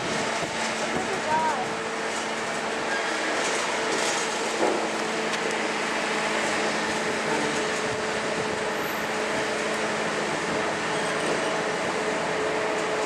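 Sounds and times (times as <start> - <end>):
train mechanical hum: 0.0 - 13.0.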